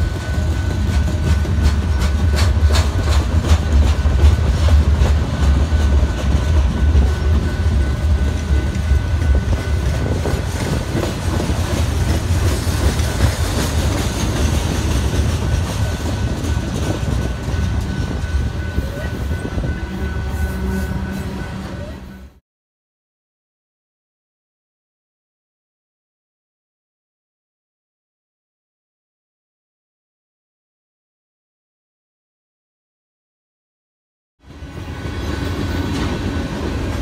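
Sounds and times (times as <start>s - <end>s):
train wheels rumbling on rail: 0.0s - 22.4s, 34.4s - 37.0s.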